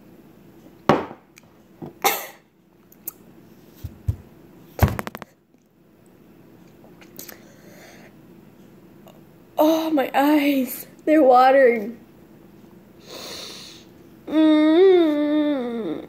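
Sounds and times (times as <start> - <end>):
person breathing sharply: 13.0 - 13.9.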